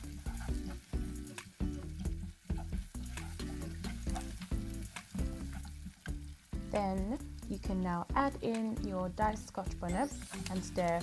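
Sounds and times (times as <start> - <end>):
background music: 0.0 - 11.0
onions sizzling in oil: 0.0 - 11.0.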